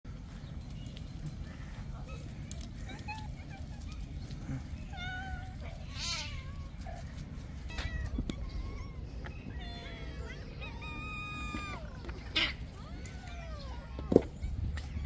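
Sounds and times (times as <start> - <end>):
cats meowing: 4.6 - 15.0.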